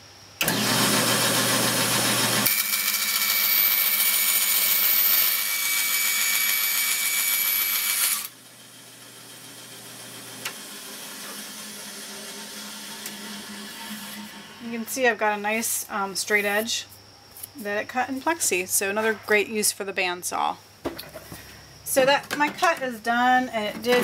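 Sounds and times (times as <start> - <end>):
band saw cutting plastic: 1.6 - 8.4, 10.4 - 14.6.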